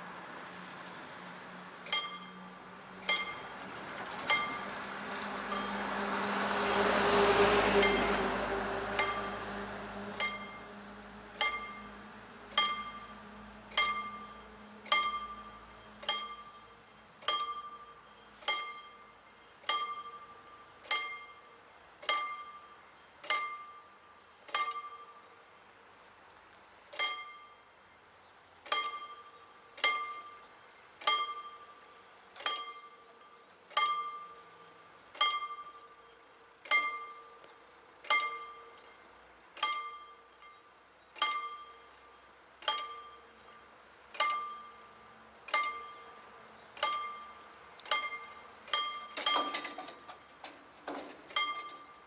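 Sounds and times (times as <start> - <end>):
lorry driving past: 0.0 - 17.2.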